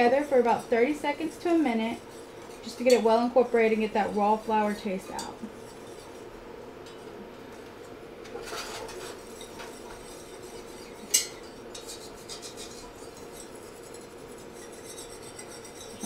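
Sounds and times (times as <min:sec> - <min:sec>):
whisk clinking against pan: 0:00.0 - 0:04.3, 0:08.3 - 0:16.0
whisk scraping a pan: 0:00.0 - 0:07.2, 0:08.2 - 0:16.0.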